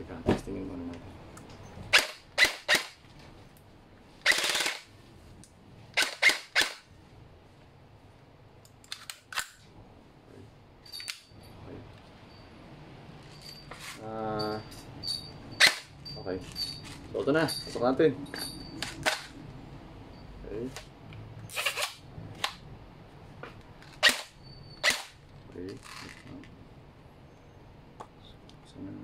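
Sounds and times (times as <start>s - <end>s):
noisy burst from airsoft gun: 4.2s - 4.9s.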